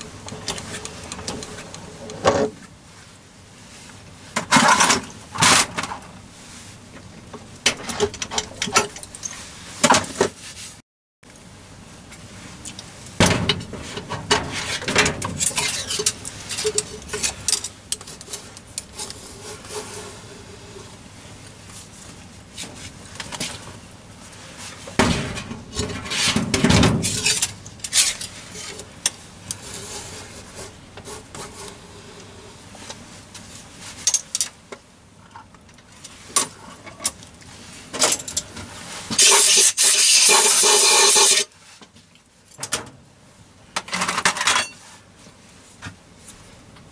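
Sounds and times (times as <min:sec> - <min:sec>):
continuous rasping metal scrape: 0:14.4 - 0:20.9.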